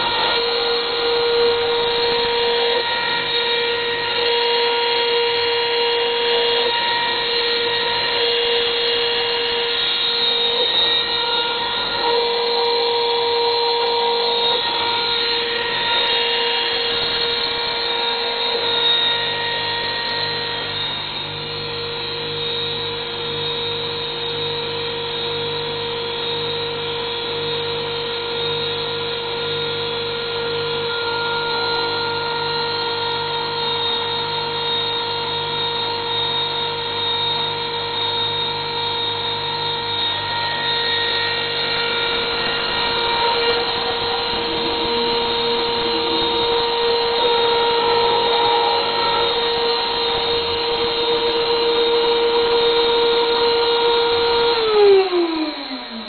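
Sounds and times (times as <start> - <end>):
mill spindle motor whine: 0.0 - 56.0.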